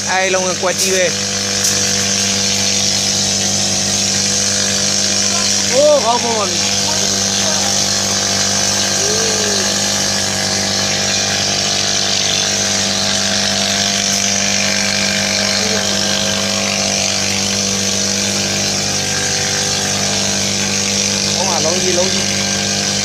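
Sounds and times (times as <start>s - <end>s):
low machine hum: 0.0s - 23.0s
high hiss: 0.6s - 10.9s.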